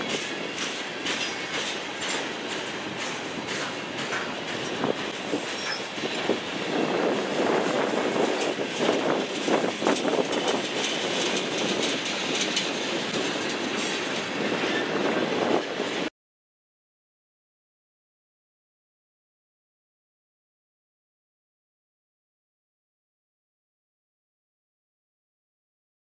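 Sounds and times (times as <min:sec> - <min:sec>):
train wheels clattering over rail joints: 0:00.0 - 0:16.1.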